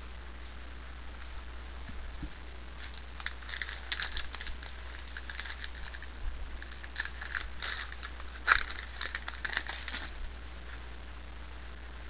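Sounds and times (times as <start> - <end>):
cards clicking and rustling: 2.8 - 10.3.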